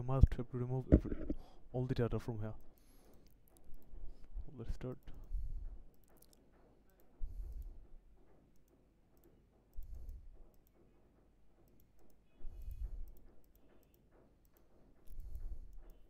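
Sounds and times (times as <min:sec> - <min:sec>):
computer mouse clicks: 0:02.6 - 0:07.8, 0:08.5 - 0:10.8, 0:11.6 - 0:16.0.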